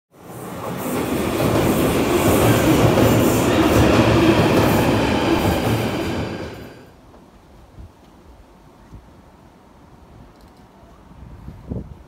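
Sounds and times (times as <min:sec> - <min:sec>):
train wheels rumbling on track: 0:00.2 - 0:06.9.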